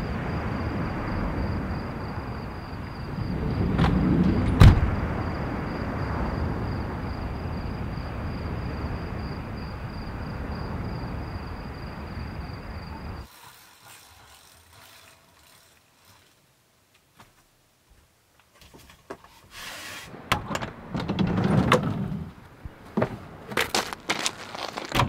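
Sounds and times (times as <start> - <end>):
pulsing insect trill: 0.0 - 3.7, 5.0 - 16.4.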